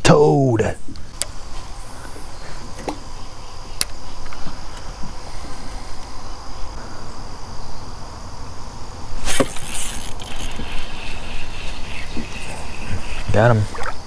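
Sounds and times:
insects chirring: 0.0s - 14.0s
fishing rod whoosh: 9.2s - 14.0s.

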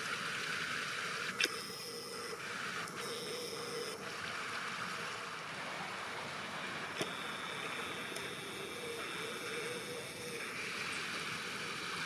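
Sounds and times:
camera zoom motor whine: 0.0s - 5.4s, 6.7s - 12.0s
camera click: 1.4s - 1.8s.

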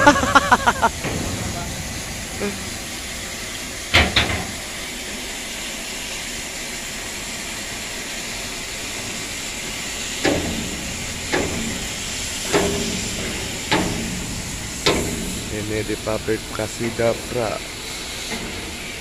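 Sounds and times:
gas cutting torch hissing: 0.0s - 19.0s
sharp ringing knocks: 10.2s - 15.5s.

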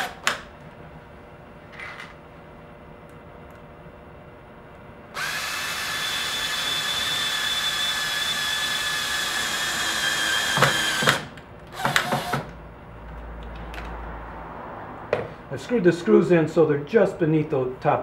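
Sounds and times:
cordless drill motor whining: 5.2s - 12.5s
drill clicks: 5.2s - 12.6s.

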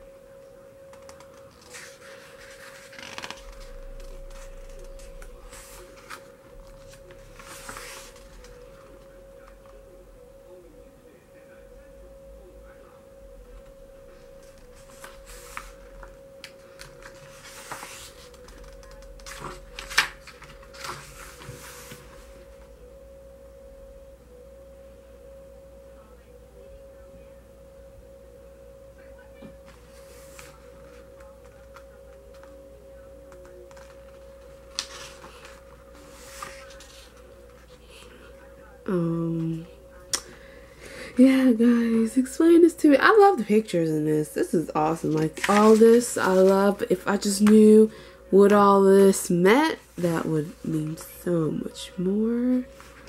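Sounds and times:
faint steady hum: 0.0s - 53.0s
steady high whine: 0.0s - 53.0s
photobook pages rustling: 1.0s - 8.9s, 14.8s - 16.1s, 16.8s - 22.5s, 29.7s - 31.8s, 33.7s - 38.1s, 45.0s - 47.6s, 52.7s - 53.0s.

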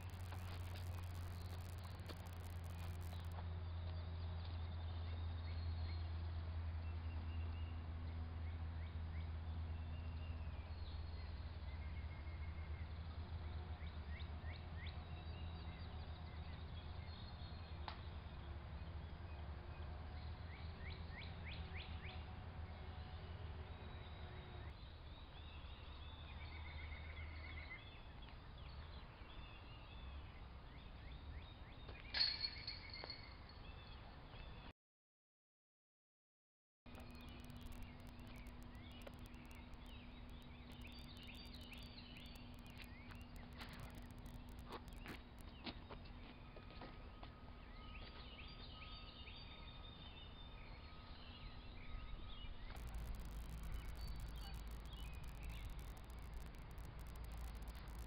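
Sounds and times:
steady low hum: 0.0s - 24.7s, 36.9s - 46.3s, 50.7s - 58.0s.

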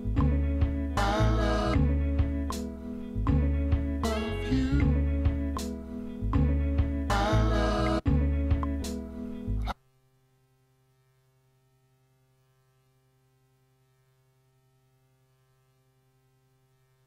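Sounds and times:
music playback: 0.0s - 10.1s
faint mains hum: 0.0s - 17.0s.

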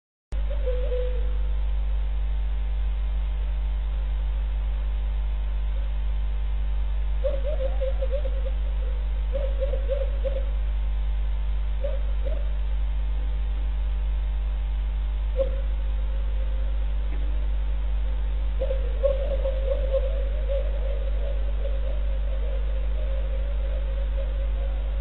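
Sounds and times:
electrical mains hum: 0.4s - 25.0s
animal crying: 7.2s - 10.5s, 11.8s - 12.6s, 15.4s - 15.8s, 18.6s - 25.0s.

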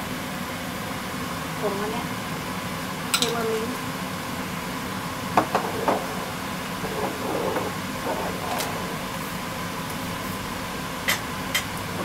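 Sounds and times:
pan simmering hiss: 0.0s - 12.0s.

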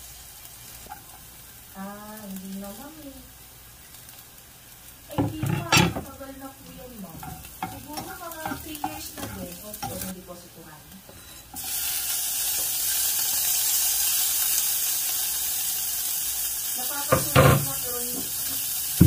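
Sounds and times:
meat sizzling in a saucepan: 0.0s - 19.0s.

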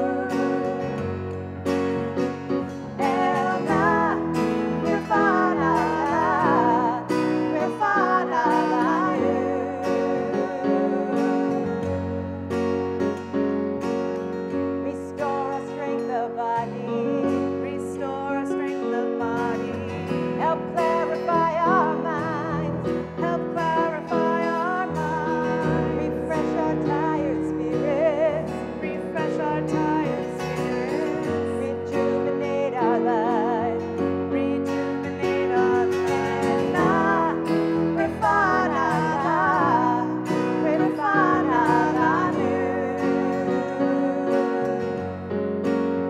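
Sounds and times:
acoustic guitar: 0.0s - 46.0s
women singing a prayer song: 3.0s - 11.7s, 20.4s - 33.8s, 34.4s - 44.9s.

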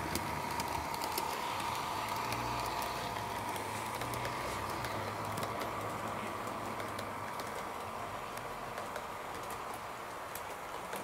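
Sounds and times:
model train motor whining: 0.0s - 7.8s
wheels clicking over rail joints: 0.0s - 11.0s.

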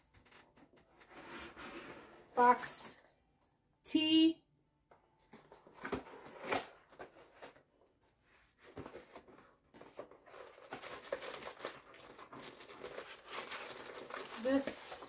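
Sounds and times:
cardboard rustling: 5.2s - 7.7s, 8.4s - 15.0s.

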